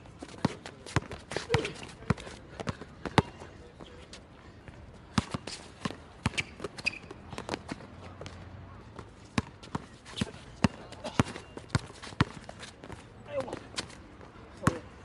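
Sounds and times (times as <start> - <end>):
basketball bouncing on court: 9.4 - 13.0.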